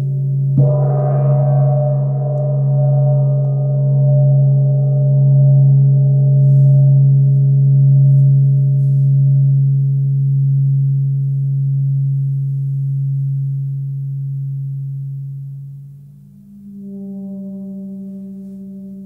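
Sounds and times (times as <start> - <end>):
gong ringing: 0.6 - 6.2.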